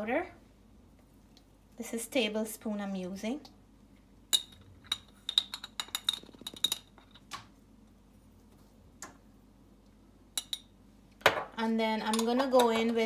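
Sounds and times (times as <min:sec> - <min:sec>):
spoon tapping metal bowl: 0:10.4 - 0:10.7.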